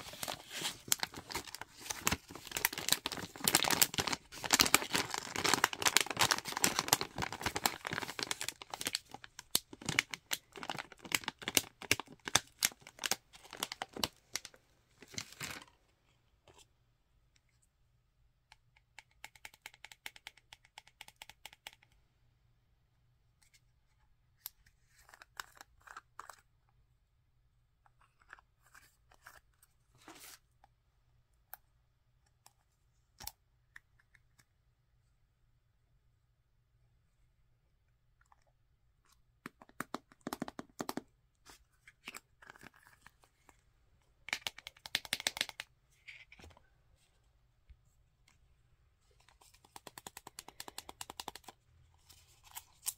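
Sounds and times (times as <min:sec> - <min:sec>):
plastic pouch crinkling and tearing: 0:00.0 - 0:15.7.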